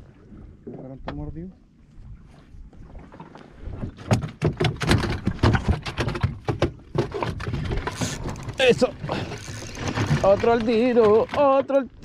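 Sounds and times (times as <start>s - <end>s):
knocks and clicks on boat: 2.9s - 12.0s.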